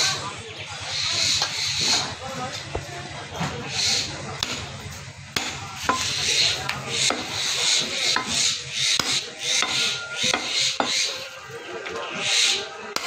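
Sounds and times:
cleaver chopping on wooden block: 7.0 - 11.1.

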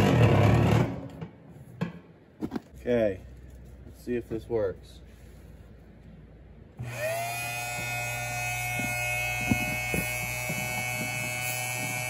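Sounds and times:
electric fuel pump whirring: 6.8 - 12.0.

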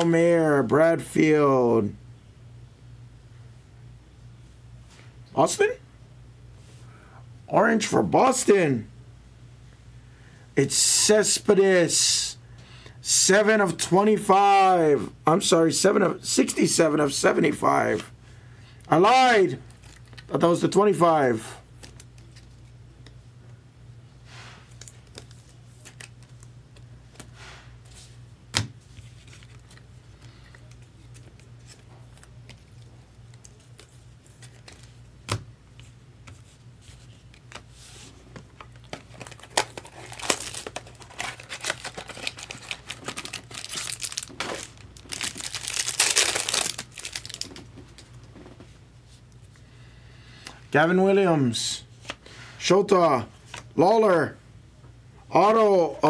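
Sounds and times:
low steady hum: 0.0 - 56.0
wrapper crinkling and tearing: 19.7 - 20.3, 38.6 - 48.1.

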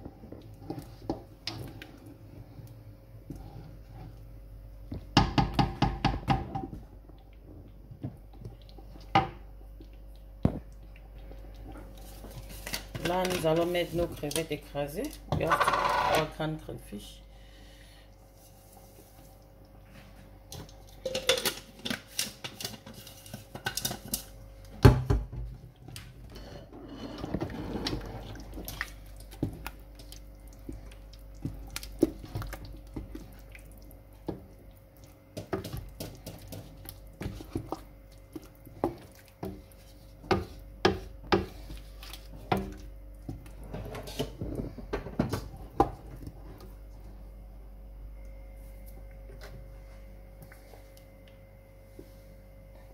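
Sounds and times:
wooden spoon scraping metal pot: 15.4 - 16.4, 26.3 - 28.4, 43.6 - 44.6.

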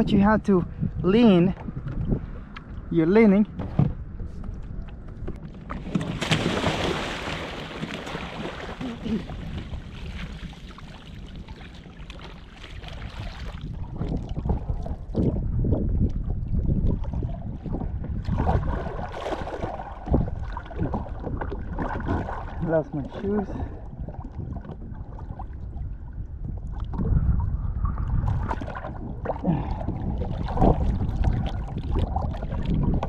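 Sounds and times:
wind buffeting microphone: 0.0 - 33.0
water sloshing: 0.8 - 15.4, 16.1 - 33.0
person splashing into water: 5.8 - 13.7, 18.2 - 22.6
rushing churning water: 5.8 - 14.8.

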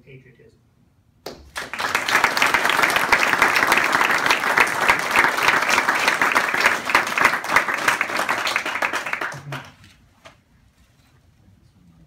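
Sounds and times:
audience applause: 1.3 - 9.8.

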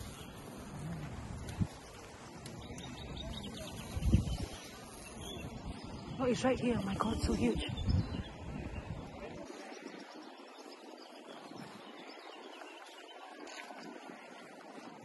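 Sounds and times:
low rumble on microphone: 0.0 - 15.0
faint distant voices: 8.5 - 12.0.

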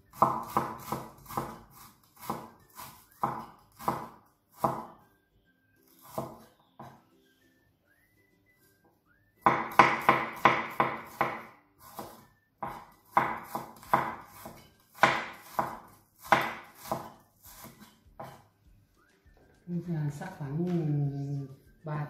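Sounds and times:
knife chopping on wooden board: 0.1 - 4.9, 6.0 - 7.0, 9.4 - 18.5.

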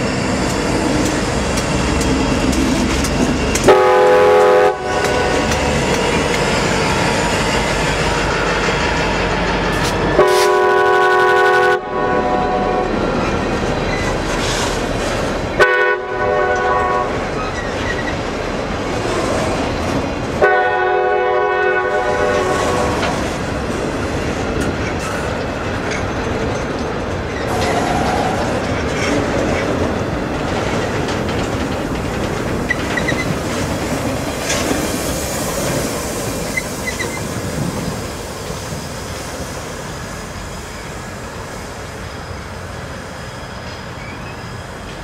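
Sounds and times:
train wheels rolling: 0.0 - 11.3, 12.2 - 45.0
diesel locomotives passing: 0.0 - 45.0
train air horn blasts: 3.6 - 5.5, 10.2 - 13.0, 15.6 - 17.3, 20.4 - 23.2.

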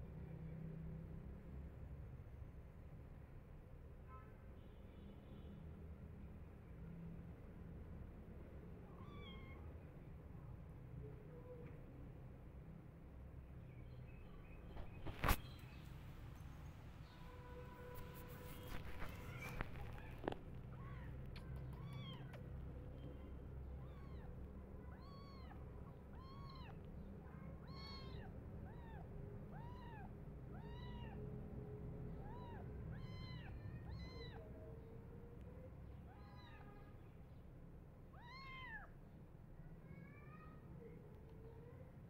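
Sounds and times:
kittens meowing: 8.9 - 9.7, 18.8 - 31.3, 32.2 - 34.9, 36.1 - 36.9, 38.1 - 38.9.

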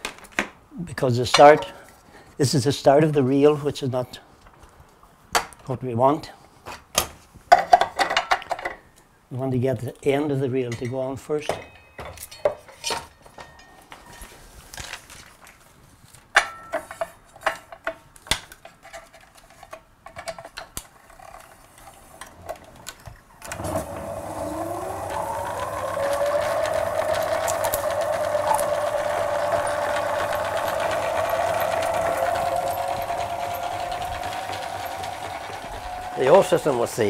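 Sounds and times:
rewind motor whine: 23.4 - 37.0.

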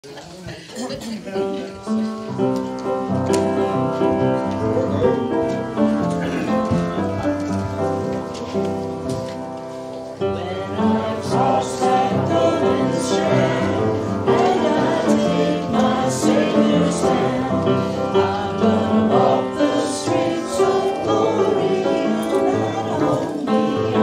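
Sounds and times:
held keyboard chords: 1.5 - 24.0
group singing a hymn: 10.2 - 24.0.

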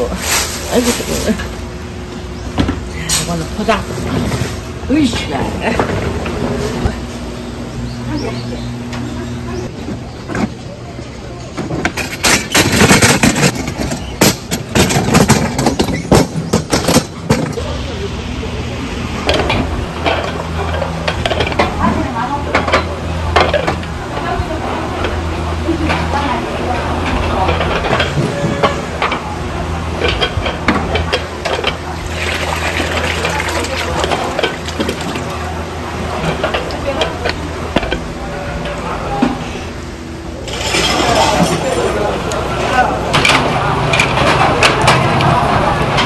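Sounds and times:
steady low hum: 0.0 - 46.0
plastic stools and tabletops clattering: 11.6 - 17.6.

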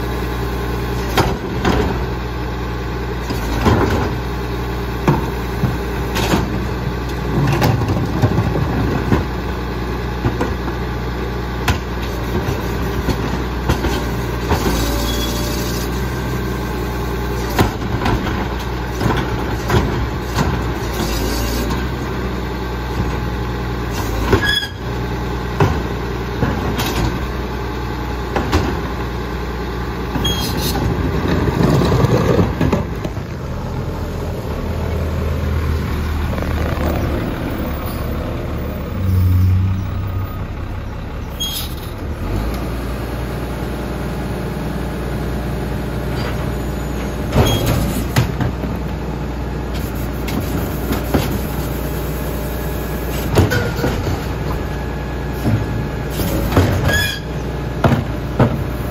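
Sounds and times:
diesel engine running: 0.0 - 58.9
carts knocking and clanging: 53.2 - 54.6.

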